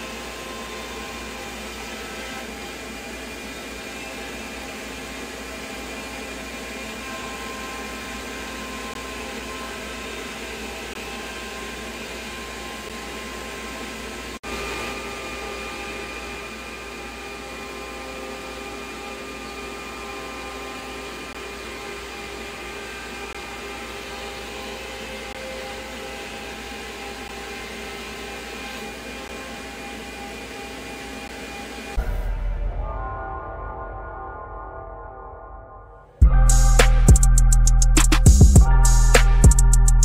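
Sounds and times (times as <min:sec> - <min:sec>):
router spindle whining: 0:00.0 - 0:32.1.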